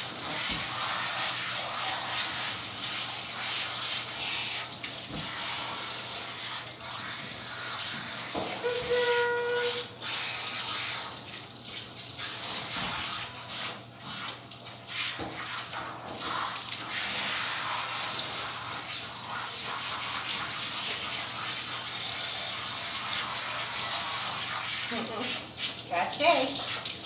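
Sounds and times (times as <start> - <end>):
hose water spraying on dog: 0.0 - 27.0.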